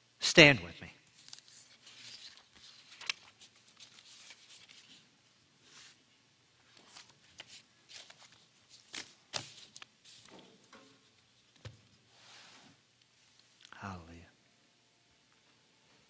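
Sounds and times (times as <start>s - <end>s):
paper being handled: 1.1s - 6.0s, 6.7s - 10.4s.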